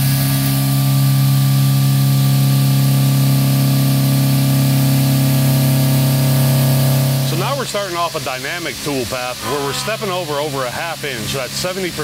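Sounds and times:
milling machine humming: 0.0s - 12.0s
constant hiss: 7.2s - 12.0s.

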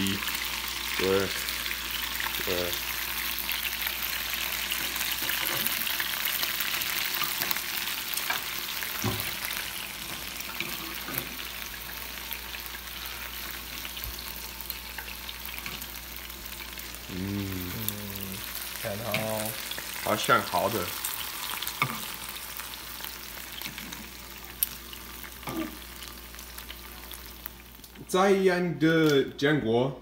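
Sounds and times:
chicken sizzling in oil: 0.0s - 28.1s.

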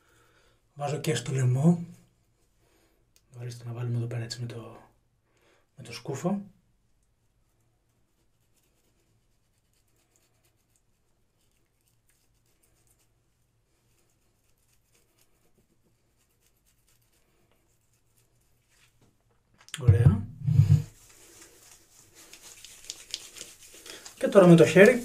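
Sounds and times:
soap rubbing on wet scalp: 7.2s - 19.0s, 20.4s - 25.0s
low steady hum: 19.7s - 20.9s.

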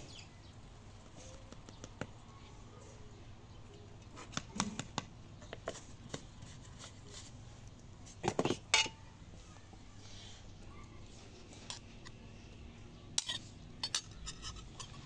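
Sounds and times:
metal spoons and bowls clinking: 13.2s - 15.0s.

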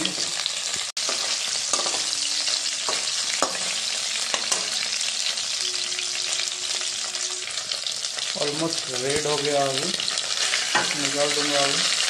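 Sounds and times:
chicken sizzling in hot oil: 0.0s - 12.0s
metal spatula scraping pan: 1.0s - 4.9s, 10.1s - 11.1s.

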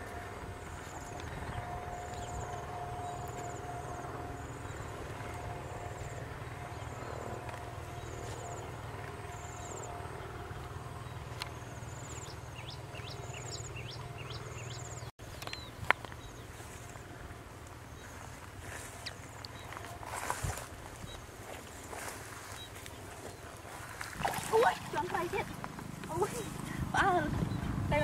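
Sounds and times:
steady low rumble: 0.0s - 28.0s.

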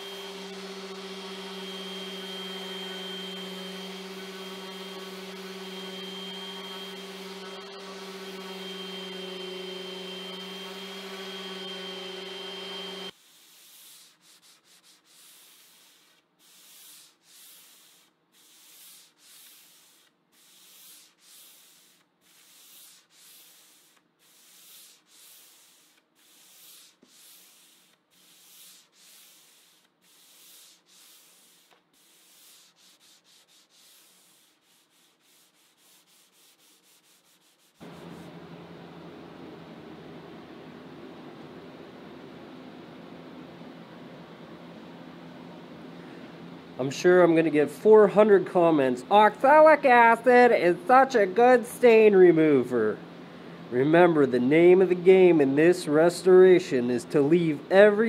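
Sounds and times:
electric sander whining: 0.0s - 13.2s
hand sanding strokes: 0.0s - 38.4s.

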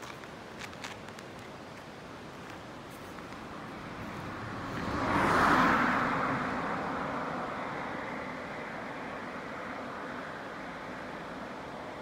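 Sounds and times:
car passing: 3.4s - 12.0s.

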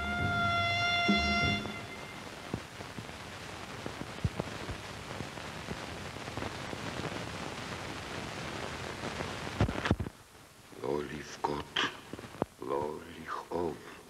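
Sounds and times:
film soundtrack hiss: 0.0s - 14.0s.

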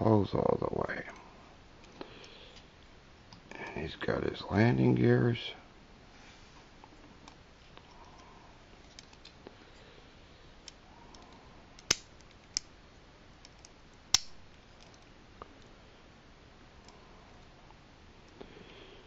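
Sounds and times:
plastic toy clicks and snaps: 11.8s - 12.7s, 13.5s - 14.3s.

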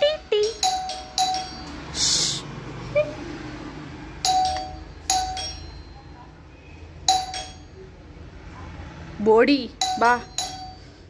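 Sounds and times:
electronic doorbell chiming: 0.3s - 1.9s, 4.2s - 6.3s, 7.1s - 7.8s, 9.8s - 11.0s.

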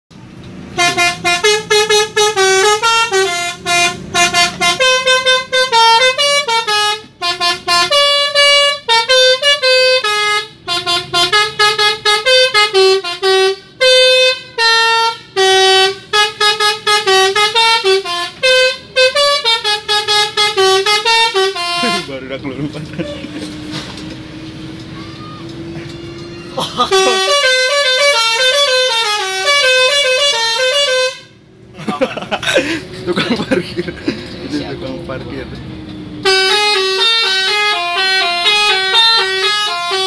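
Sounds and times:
low engine rumble: 0.1s - 40.0s
musical truck air horn: 0.7s - 22.2s, 26.8s - 31.5s, 36.2s - 40.0s.

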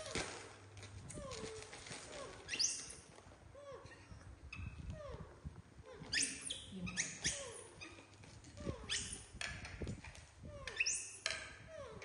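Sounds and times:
baby monkey squeals: 2.5s - 3.0s, 5.9s - 9.3s, 10.5s - 12.0s.

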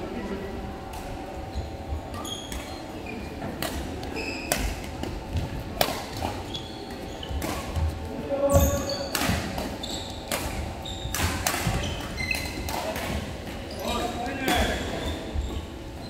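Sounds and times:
shoes squeaking on court: 1.5s - 12.9s, 13.6s - 16.0s
rackets striking shuttlecock: 3.6s - 6.4s, 9.1s - 13.2s.

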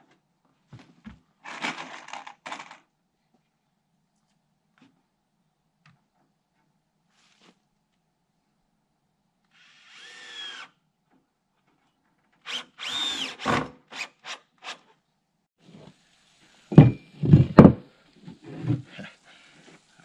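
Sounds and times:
power drill whining: 9.5s - 10.7s, 12.4s - 14.8s.

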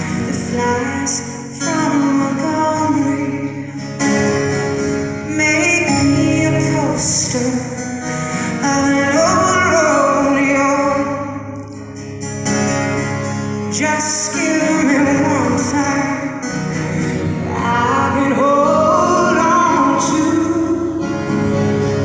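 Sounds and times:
woman singing: 0.0s - 3.8s, 5.2s - 11.4s, 13.7s - 16.4s, 17.3s - 21.6s
acoustic guitars: 0.0s - 22.0s.

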